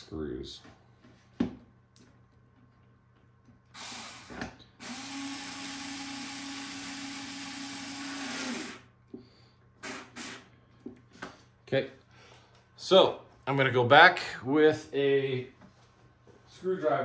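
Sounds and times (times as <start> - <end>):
electric screwdriver motor: 3.8 - 8.8.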